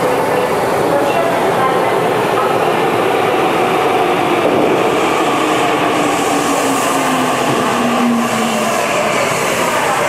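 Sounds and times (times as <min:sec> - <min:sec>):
electric train running: 0:02.9 - 0:10.0.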